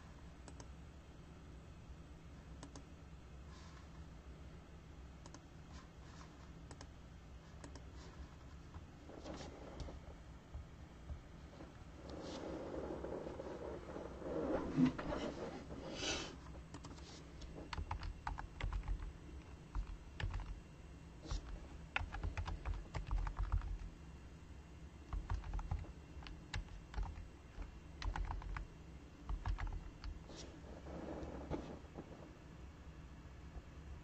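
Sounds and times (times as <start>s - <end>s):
computer keyboard typing: 6.7s - 6.9s, 7.6s - 7.9s, 16.7s - 20.6s, 21.3s - 23.9s, 25.1s - 28.7s, 29.3s - 30.2s.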